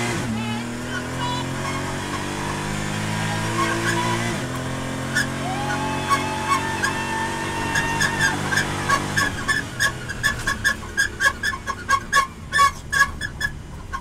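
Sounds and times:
race car engine at full throttle: 0.0s - 14.0s.

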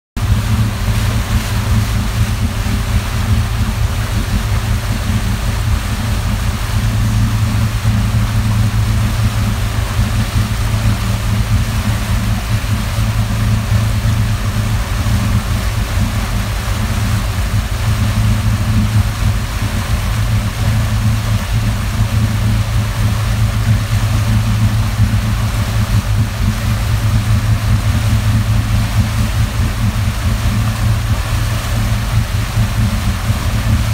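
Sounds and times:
motorboat engine humming: 0.2s - 33.9s
water wash: 0.2s - 33.9s.

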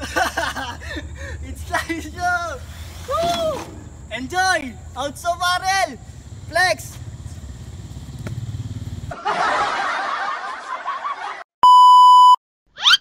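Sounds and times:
laughter sound effect: 0.0s - 1.0s, 9.1s - 11.5s
low outdoor rumble: 0.0s - 9.2s
loud electronic beep tone: 11.6s - 12.4s.

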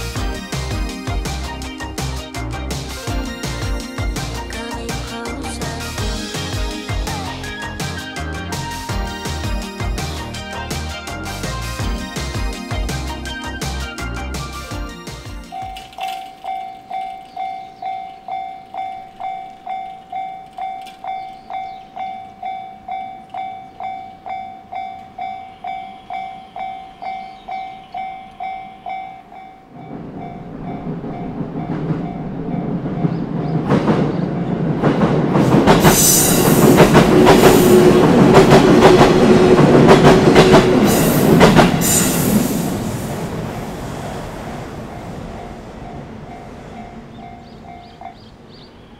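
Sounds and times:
electric train passing: 0.0s - 48.9s
level crossing bell ringing: 3.0s - 30.4s
train wheels clicking on rail joints: 15.1s - 43.6s.

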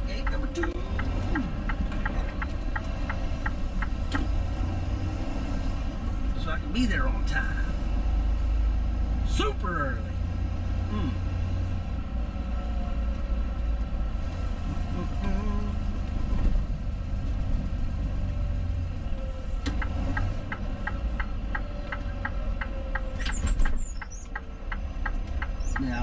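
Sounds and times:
turn signal ticking: 0.0s - 4.7s, 19.0s - 26.0s
diesel truck engine rumbling: 0.0s - 26.0s.

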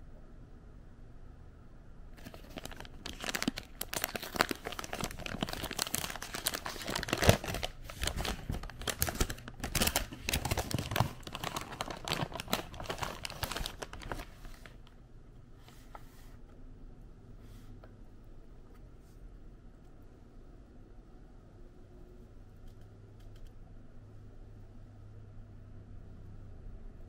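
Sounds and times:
paper bag crinkling and rustling: 2.2s - 14.9s.

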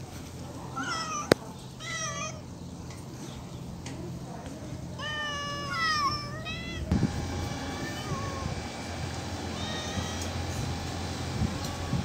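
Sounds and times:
cat meowing: 0.8s - 2.4s, 5.0s - 6.9s, 9.5s - 10.4s.

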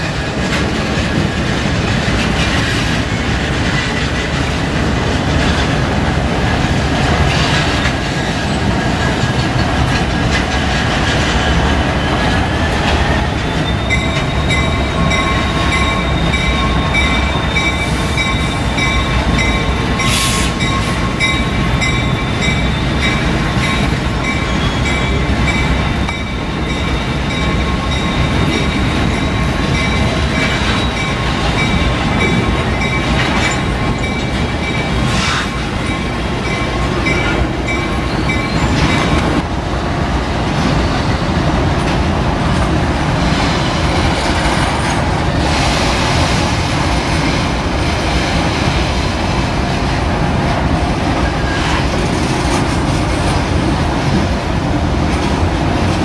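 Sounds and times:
wheel flanges squealing on rails: 0.0s - 39.4s, 50.7s - 54.2s
train rumble and wheel clatter: 0.0s - 56.0s.

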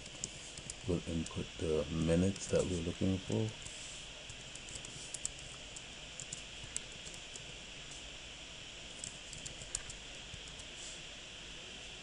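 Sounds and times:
keyboard typing: 0.0s - 1.4s, 4.3s - 7.4s, 9.0s - 10.7s
steady background hiss: 0.0s - 12.0s.

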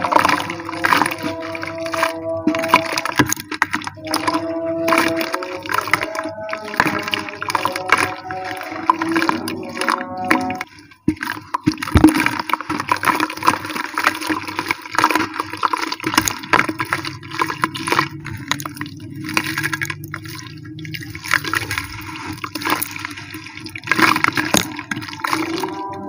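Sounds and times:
gritty crackling of crumbled cement: 0.0s - 26.0s
water splashes and trickles: 0.0s - 26.0s.

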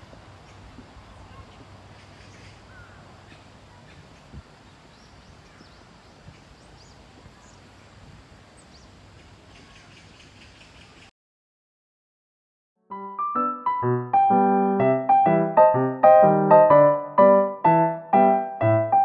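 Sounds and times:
faint bird chirps: 8.6s - 11.1s.

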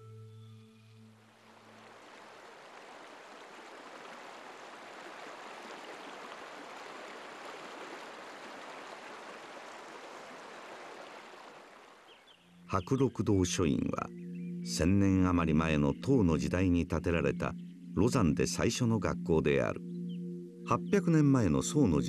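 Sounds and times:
water rushing: 1.1s - 14.1s.

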